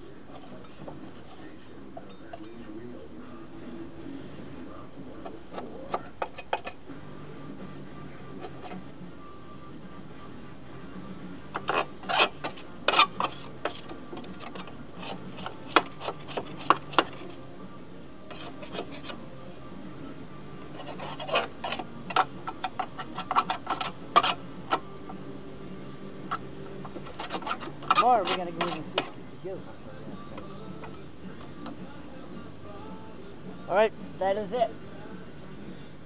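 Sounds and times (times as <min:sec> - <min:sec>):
tool scraping metal deck: 0:11.6 - 0:17.4, 0:18.3 - 0:19.2, 0:20.7 - 0:24.8, 0:26.3 - 0:29.2.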